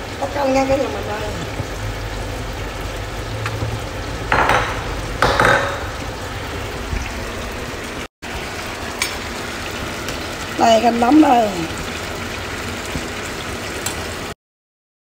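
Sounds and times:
bowl and cookware clinking: 4.3s - 6.0s.

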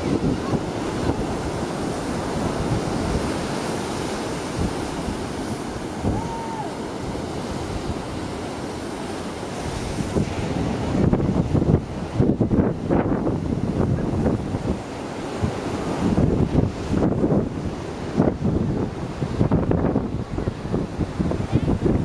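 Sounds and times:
surf breaking on rocky shore: 0.0s - 22.0s
wind buffeting microphone: 0.0s - 22.0s.

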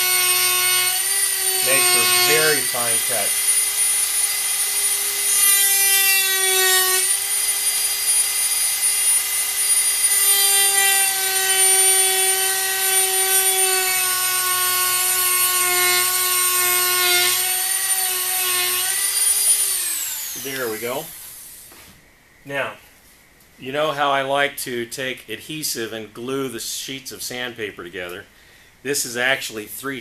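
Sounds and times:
rotary tool cutting whine: 0.0s - 21.7s.

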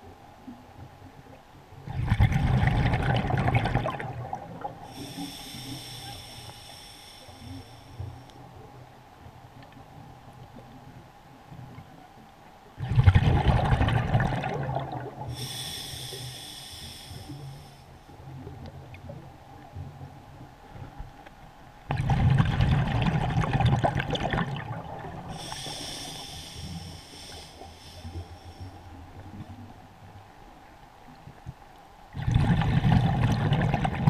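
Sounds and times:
rush of exhaled bubbles: 1.9s - 6.5s, 12.8s - 16.2s, 21.9s - 28.3s, 32.2s - 34.0s
regulator inhalation hiss: 4.9s - 8.2s, 15.3s - 18.0s, 25.3s - 29.0s.

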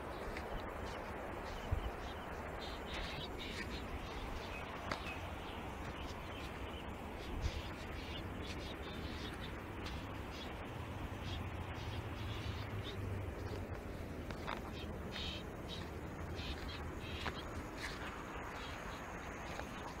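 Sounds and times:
wind noise on microphone: 0.0s - 10.6s
faint bird chirps: 14.7s - 17.5s.

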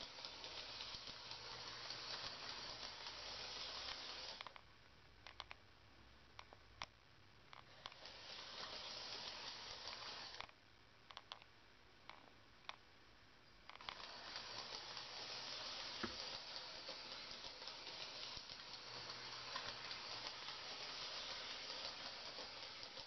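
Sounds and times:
toy train motor whirring: 0.0s - 4.6s, 7.6s - 10.6s, 13.7s - 23.0s
small clicks: 0.0s - 5.6s, 6.4s - 11.5s.

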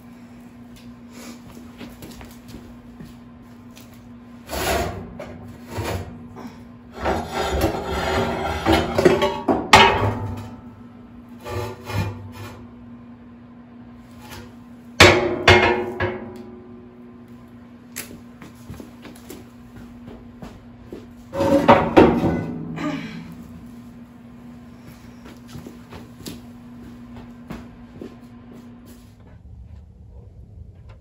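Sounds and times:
scraping and knocking in wood stove: 4.4s - 10.7s, 11.4s - 12.7s, 14.1s - 16.6s, 21.0s - 23.9s.

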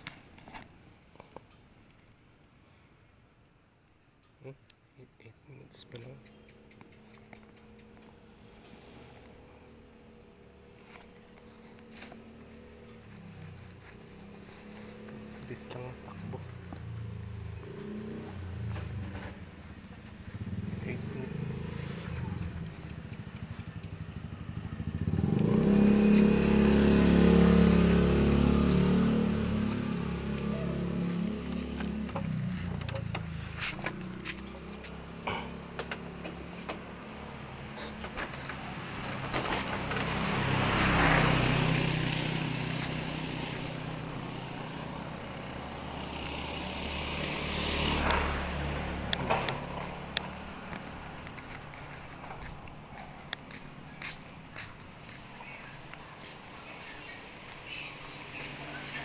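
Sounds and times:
motorcycle engine running: 6.2s - 59.0s.

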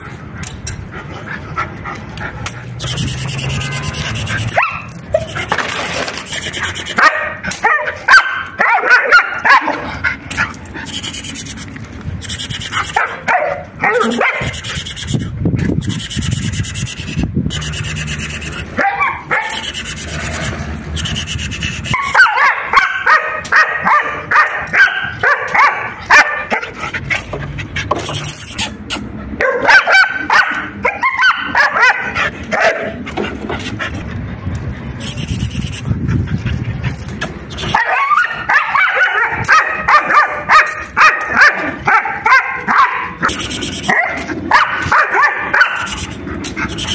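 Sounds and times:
dog barking: 4.4s - 4.9s, 7.0s - 9.9s, 12.8s - 14.6s, 18.8s - 19.6s, 21.9s - 26.7s, 29.4s - 33.0s, 37.7s - 46.0s.

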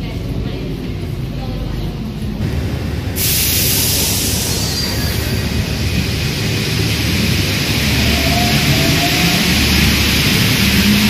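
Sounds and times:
train running noise: 0.0s - 11.0s
faint rising whistle: 3.2s - 6.1s, 7.8s - 10.1s.

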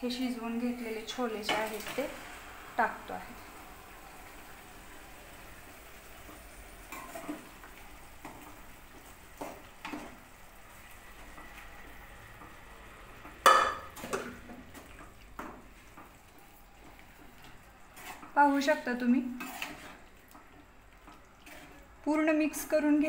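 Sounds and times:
spoon stirring curry in pan: 3.9s - 23.0s
spoon clinking and scraping pan: 19.3s - 20.0s.

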